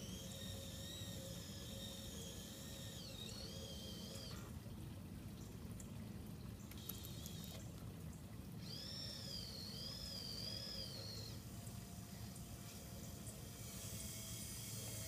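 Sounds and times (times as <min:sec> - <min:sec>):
electric hoist motor whining: 0:00.0 - 0:04.4, 0:08.6 - 0:15.0
steady low hum: 0:00.0 - 0:15.0.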